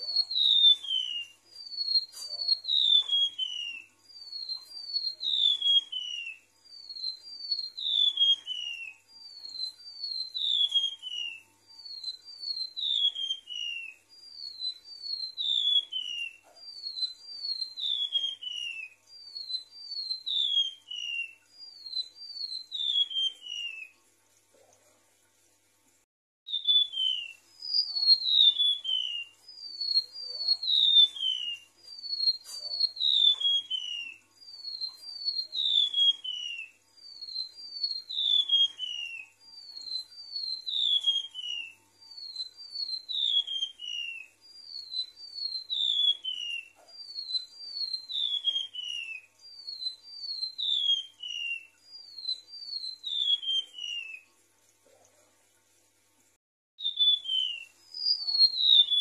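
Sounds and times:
bird singing high whistled notes: 0.0 - 24.0, 26.5 - 54.3, 56.8 - 59.0.

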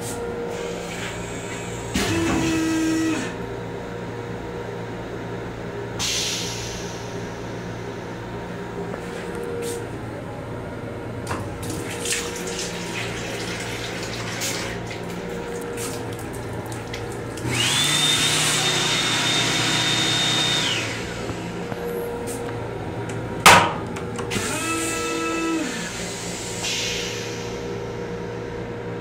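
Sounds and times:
train hum: 0.0 - 13.0, 15.1 - 24.7
faucet running into basin: 11.6 - 19.7.

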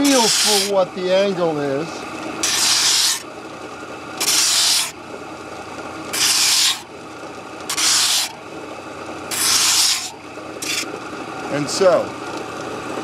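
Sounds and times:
wood sanding strokes: 0.0 - 0.8, 2.4 - 3.2, 4.2 - 4.9, 6.1 - 6.8, 7.7 - 8.4, 9.3 - 10.9
sander running: 0.0 - 3.3, 4.0 - 5.0, 5.7 - 11.4.

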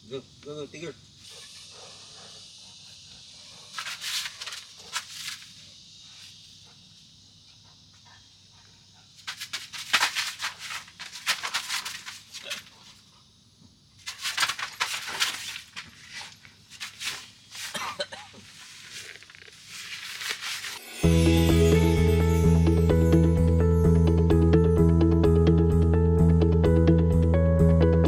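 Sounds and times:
dog scuffling on fabric mat: 9.2 - 13.0, 14.0 - 17.8.

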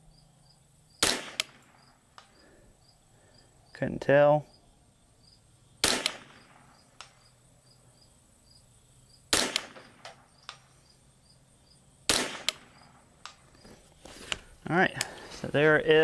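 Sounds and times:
crickets chirping: 0.0 - 16.0
rifle shots with echo: 1.0 - 1.8, 5.8 - 7.2, 9.3 - 10.6, 12.1 - 13.4
faint tick of bullet on steel: 7.0 - 7.2.

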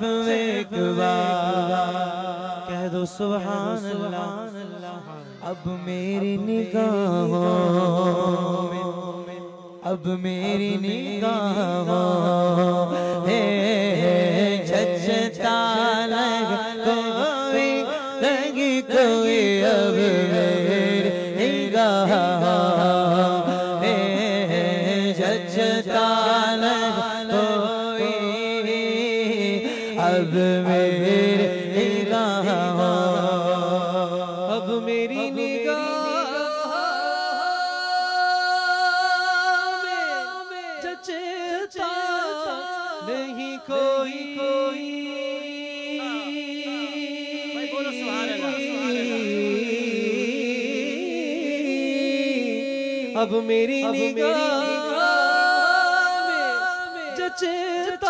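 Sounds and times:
person singing melody: 5.0 - 6.5.

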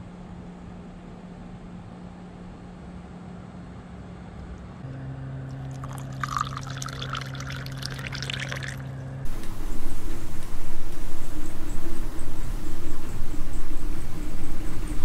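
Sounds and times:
low steady hum: 0.0 - 15.0
water pouring into a glass: 5.5 - 10.3
loud steady noise: 8.6 - 15.0.

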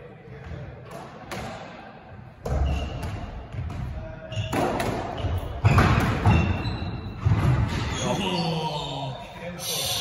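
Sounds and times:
shoes squeaking on wooden floor: 4.3 - 8.6.

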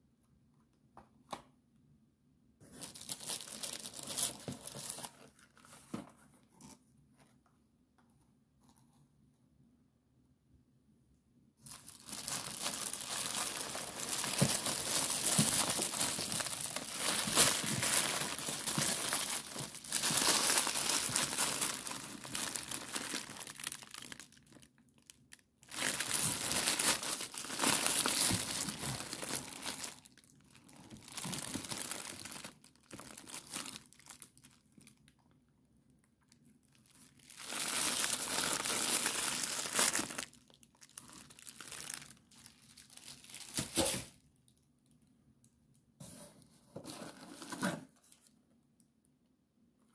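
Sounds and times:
paper crinkling and rustling: 11.7 - 24.7.

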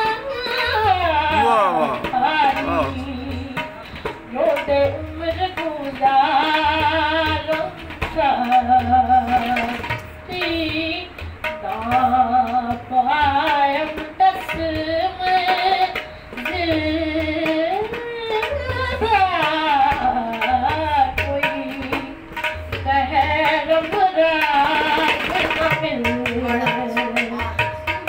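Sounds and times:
woman singing: 0.0 - 28.0
low percussion beat: 1.1 - 5.5.

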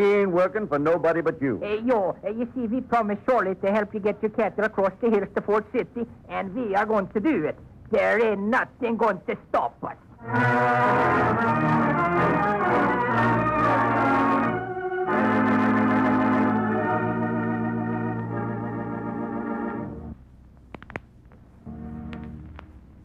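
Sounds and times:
organ playing held chords: 10.1 - 20.2, 21.6 - 22.7
faint clicks: 20.5 - 21.5.

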